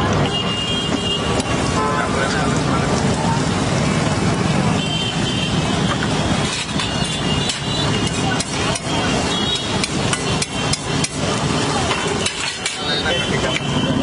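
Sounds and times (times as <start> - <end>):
metal spatula scraping griddle: 5.9 - 13.4.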